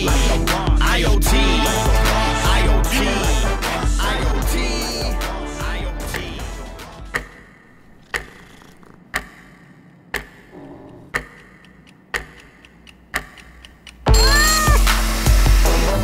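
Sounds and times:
loud music: 0.0s - 7.1s, 14.1s - 16.0s
wall clock ticking: 6.0s - 15.4s.

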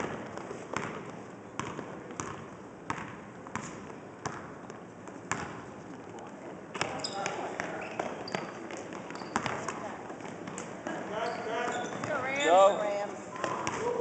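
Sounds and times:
basketball bouncing on hardwood floor: 0.0s - 4.7s, 5.3s - 5.6s, 6.8s - 9.8s.

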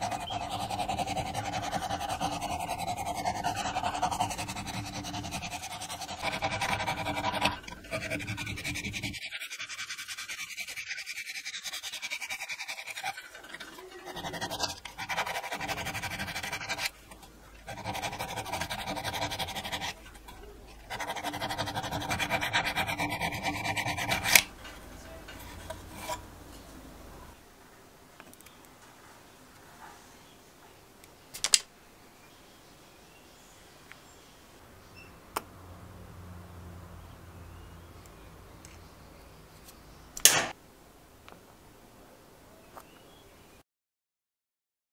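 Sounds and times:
file rasping on metal: 0.0s - 26.3s.

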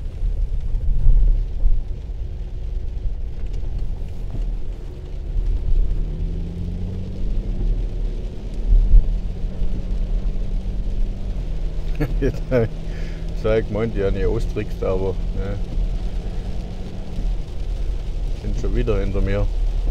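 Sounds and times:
low thumps: 0.0s - 2.1s, 7.1s - 12.0s
car engine and road rumble: 0.0s - 19.9s.

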